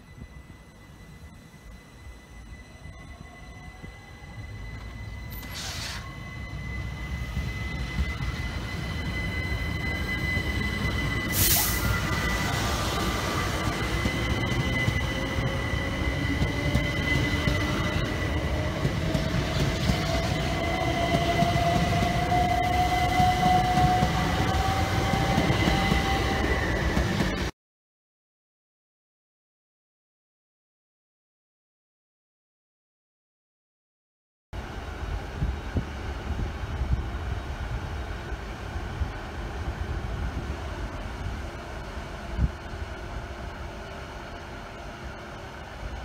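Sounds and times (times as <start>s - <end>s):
constant high whine: 0.0s - 20.6s
rising whine: 0.0s - 27.4s
train wheels rumbling on rail: 2.6s - 27.5s, 34.6s - 46.0s
short burst of noise: 5.4s - 6.2s.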